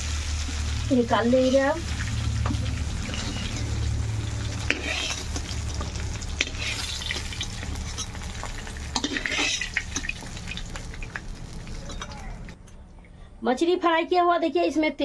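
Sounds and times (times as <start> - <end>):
fish sizzling in oil: 0.0 - 12.6
metal spatula scraping pan: 1.8 - 10.6.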